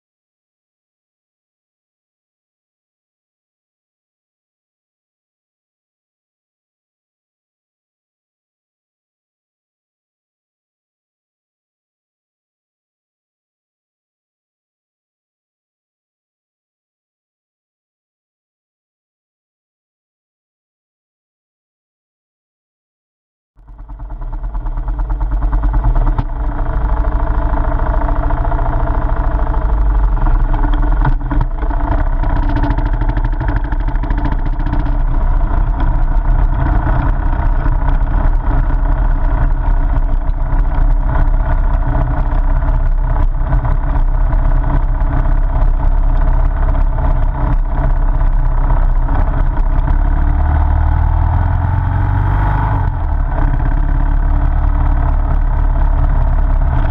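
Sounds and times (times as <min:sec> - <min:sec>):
motorcycle engine running: 0:23.6 - 0:56.9.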